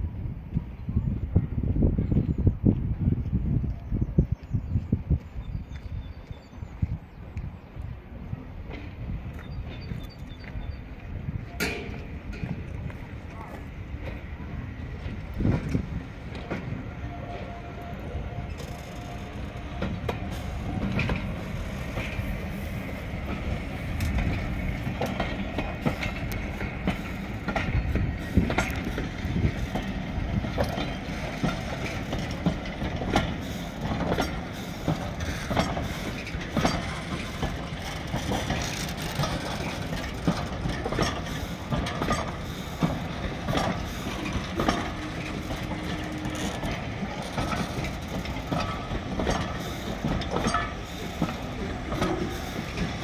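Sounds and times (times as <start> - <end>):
train rumbling on track: 0.0 - 53.0
wheels clicking over rails: 18.3 - 53.0.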